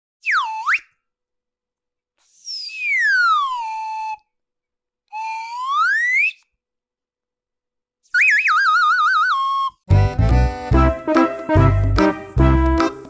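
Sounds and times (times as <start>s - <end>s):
falling cartoon whistle: 0.2s - 1.0s, 2.3s - 4.3s, 5.1s - 6.5s, 8.1s - 9.8s
rising cartoon whistle: 0.2s - 1.0s, 2.3s - 4.3s, 5.1s - 6.5s, 8.1s - 9.8s.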